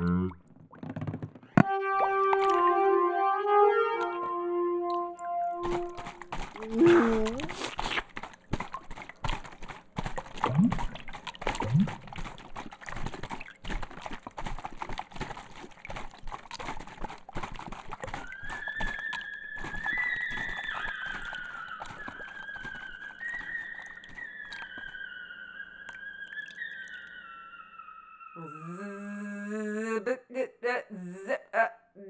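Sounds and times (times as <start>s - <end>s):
high whistle-like tone: 18.2s - 28.7s.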